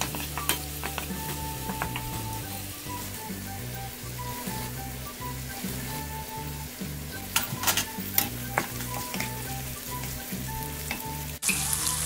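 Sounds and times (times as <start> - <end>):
wooden spatula clacking in pan: 0.0 - 2.2
onions sizzling in oil: 0.0 - 12.0
soft background music: 0.0 - 12.0.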